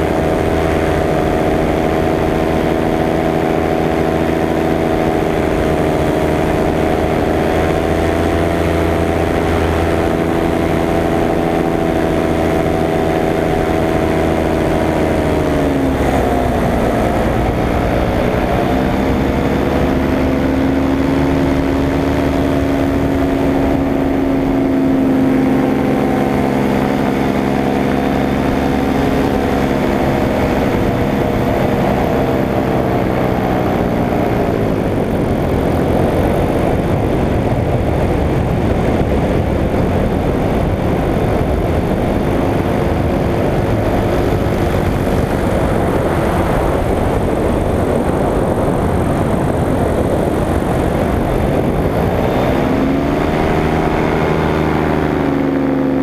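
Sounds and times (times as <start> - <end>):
paramotor engine and propeller: 0.0 - 56.0.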